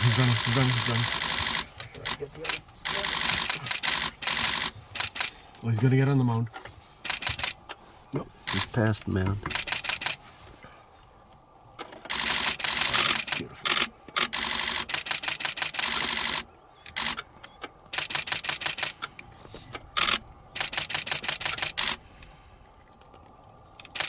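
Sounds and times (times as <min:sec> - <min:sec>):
camera shutters clicking: 0:00.0 - 0:05.4, 0:07.0 - 0:07.6, 0:09.5 - 0:10.2, 0:11.9 - 0:17.3, 0:17.9 - 0:19.2, 0:19.8 - 0:22.0, 0:23.8 - 0:24.0.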